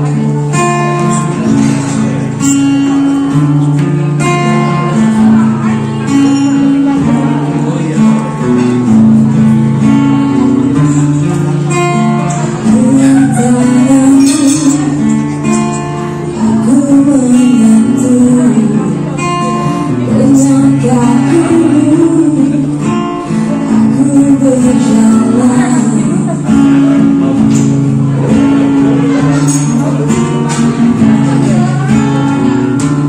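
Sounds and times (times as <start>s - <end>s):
amplified guitar: 0.0s - 33.0s
woman singing into microphone: 11.8s - 33.0s.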